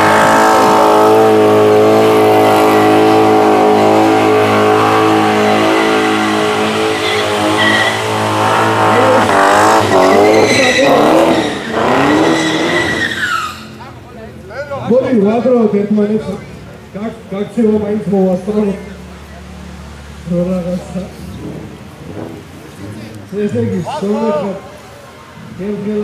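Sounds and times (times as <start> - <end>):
car engines at high revs: 0.0 - 14.5, 15.1 - 26.0
tyres squealing: 4.2 - 14.0.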